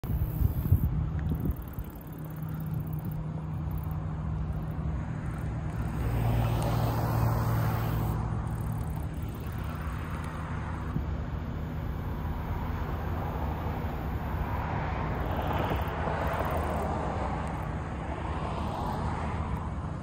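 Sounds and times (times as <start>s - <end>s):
steady low hum: 0.0s - 18.3s
road vehicle passing by: 0.1s - 20.0s.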